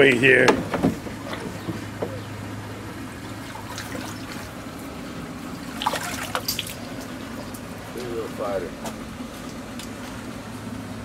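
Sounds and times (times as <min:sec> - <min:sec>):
water splashing: 0:00.6 - 0:08.0
water trickling: 0:01.1 - 0:08.0.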